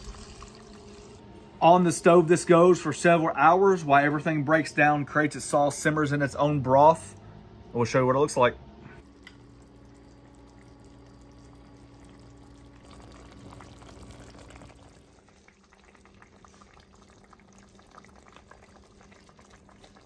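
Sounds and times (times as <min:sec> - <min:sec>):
faint steady hum: 0:00.0 - 0:20.0
broth bubbling and popping: 0:09.0 - 0:20.0.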